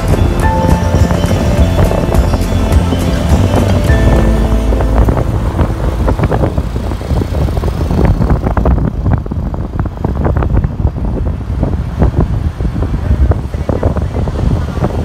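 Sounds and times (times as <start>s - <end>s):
street traffic passing: 0.0s - 15.0s
wind buffeting microphone: 0.0s - 15.0s.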